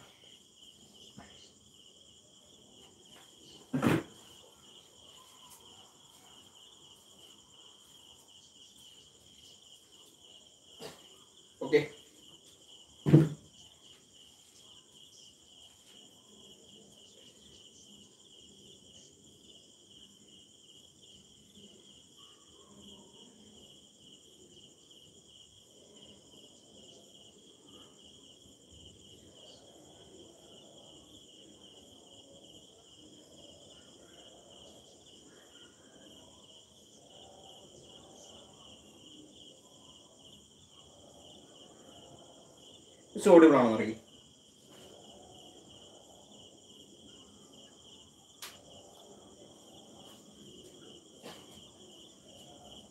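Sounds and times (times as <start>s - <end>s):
crickets trilling: 0.0s - 52.9s
loud thump: 3.7s - 4.3s, 13.0s - 13.5s.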